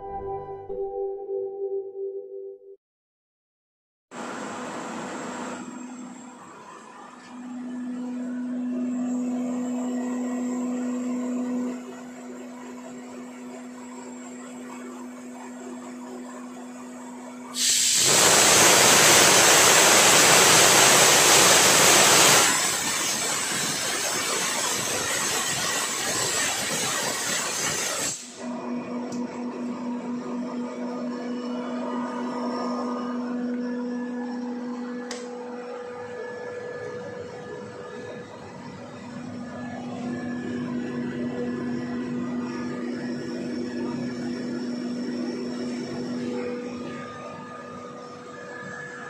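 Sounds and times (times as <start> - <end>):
air compressor humming: 17.4 - 49.0
compressed air hissing: 17.6 - 28.4.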